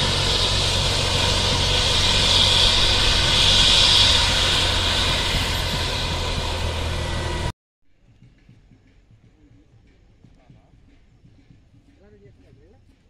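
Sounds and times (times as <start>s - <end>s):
helicopter engine running: 0.0s - 7.5s
faint outdoor sound: 0.0s - 13.0s.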